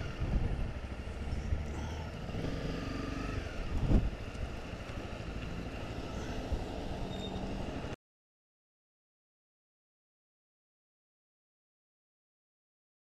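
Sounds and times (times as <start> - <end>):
wind noise on microphone: 0.0 - 1.7, 3.3 - 4.8.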